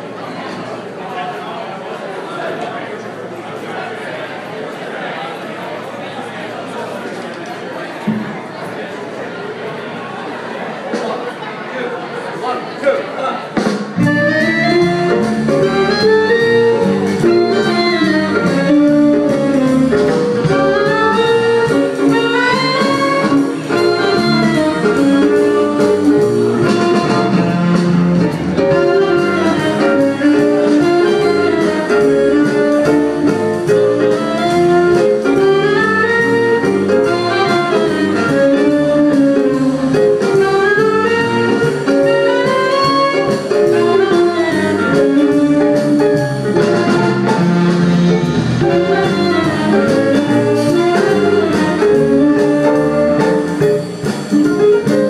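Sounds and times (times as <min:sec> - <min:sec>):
jazz band playing: 0:13.4 - 0:55.0.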